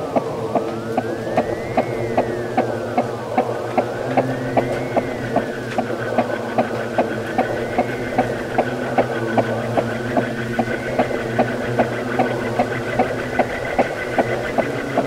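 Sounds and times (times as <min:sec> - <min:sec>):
ceiling fan humming and ticking: 0:00.0 - 0:15.0
faint rising and falling tone: 0:00.0 - 0:15.0.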